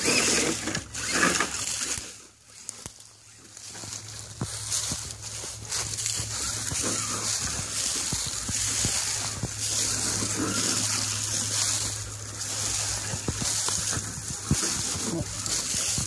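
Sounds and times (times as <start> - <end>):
dry grass rustling and snapping: 0.0 - 16.0
wind noise on microphone: 6.2 - 16.0.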